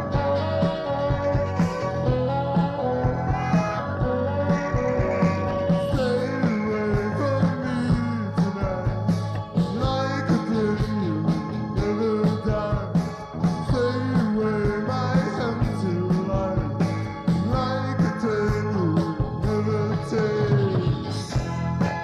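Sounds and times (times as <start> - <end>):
live rock band playing: 0.0 - 22.0
saxophone lead line: 0.0 - 22.0.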